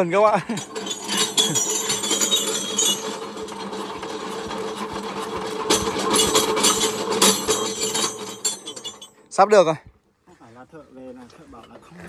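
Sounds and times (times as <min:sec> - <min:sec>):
engine cranked by hand whirring: 0:00.3 - 0:09.2.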